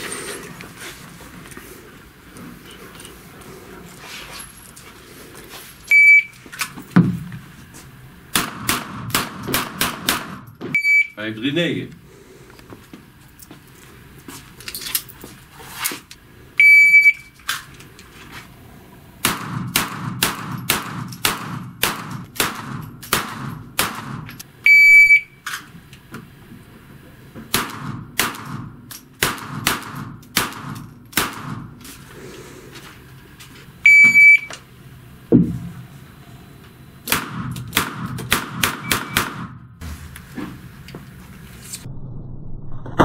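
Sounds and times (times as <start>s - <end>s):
handgun shots: 8.4s - 10.4s, 37.1s - 39.5s
shot timer beeps: 10.8s - 11.2s, 16.6s - 17.3s, 24.7s - 25.4s, 33.9s - 34.6s, 38.8s - 39.2s.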